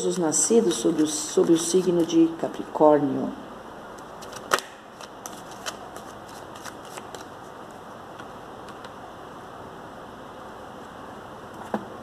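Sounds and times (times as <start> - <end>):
cards being shuffled: 4.0 - 7.4.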